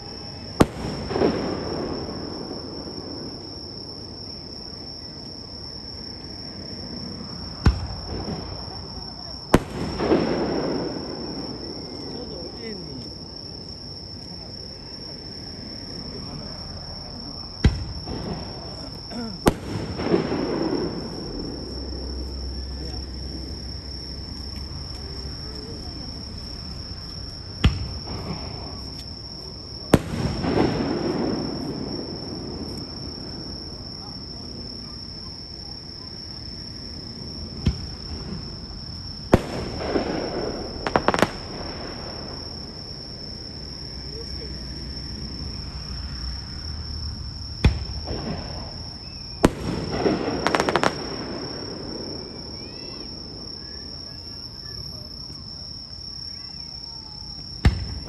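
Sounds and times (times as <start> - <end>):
fireworks bursting: 0.0 - 4.1, 6.6 - 13.6, 15.0 - 33.8, 37.0 - 43.6, 47.5 - 54.0, 57.6 - 58.0
high insect trill: 0.0 - 58.0.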